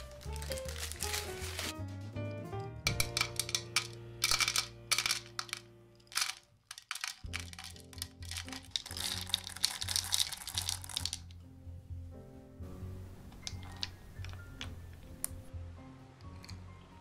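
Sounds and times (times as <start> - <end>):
soft background music: 0.0 - 17.0
chocolate pieces clinking into glass: 2.9 - 11.2.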